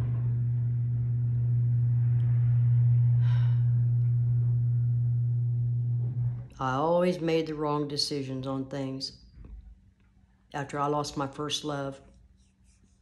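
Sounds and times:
low-pitched motor hum: 0.0 - 7.8.

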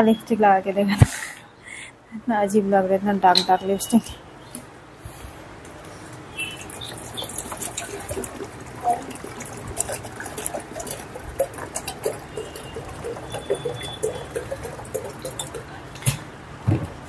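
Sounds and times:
water bubbling as it heats: 6.4 - 15.7.

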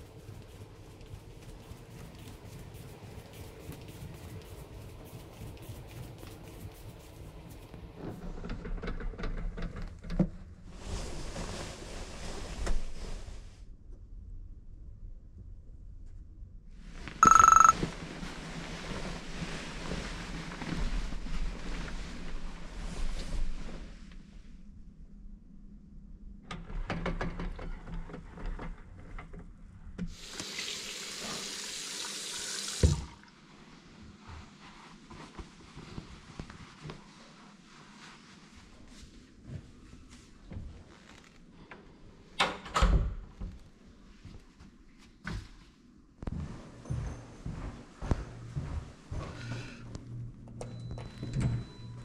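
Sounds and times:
bedding fabric rustling: 10.7 - 13.5, 17.8 - 24.1, 33.7 - 41.2
tap running into a sink: 30.1 - 33.1.

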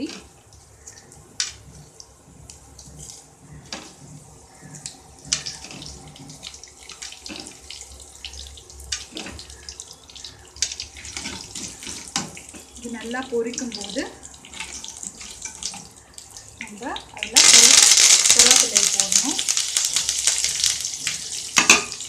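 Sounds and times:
seeds frying in hot oil: 0.0 - 22.0
sharp crackles and pops: 17.2 - 22.0.

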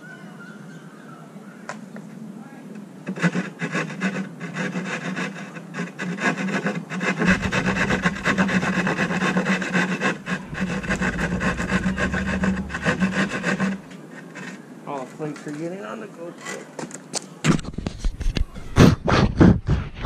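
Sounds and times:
hand saw rasping through drywall: 3.1 - 14.5.

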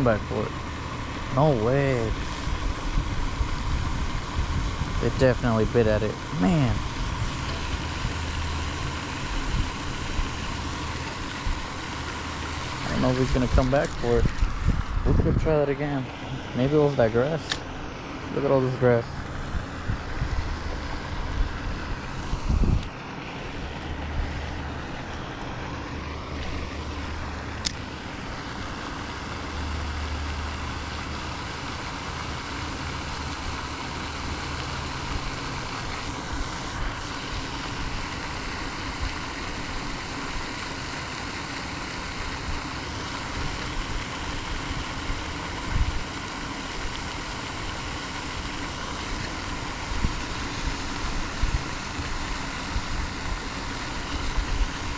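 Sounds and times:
outdoor background noise: 0.0 - 54.9
wind rumbling on microphone: 2.0 - 10.5, 12.7 - 15.8, 19.2 - 22.9, 43.4 - 46.1, 49.8 - 54.9.

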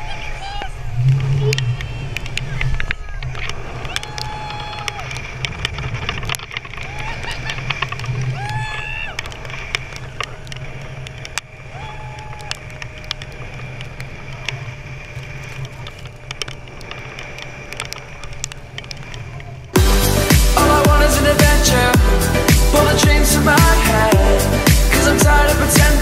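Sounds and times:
zipline trolley whirring on cable: 0.0 - 19.8
person whooping: 3.8 - 5.2, 6.8 - 7.5, 8.3 - 9.2, 11.7 - 12.6.

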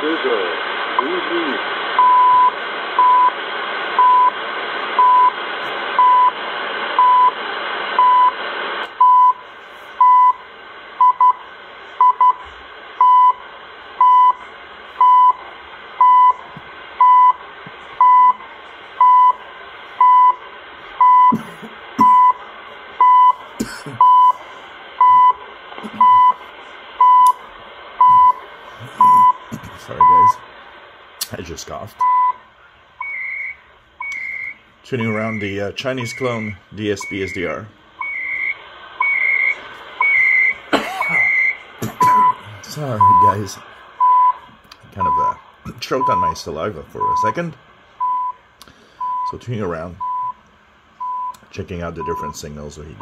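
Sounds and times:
radio band hiss: 0.0 - 50.1, 51.4 - 53.0
time signal ticks: 27.2 - 27.4, 33.0 - 37.4, 51.0 - 52.4.

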